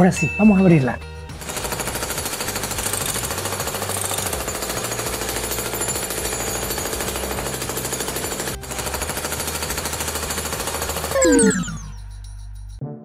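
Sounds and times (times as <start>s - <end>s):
power tool rattling: 1.4s - 11.2s.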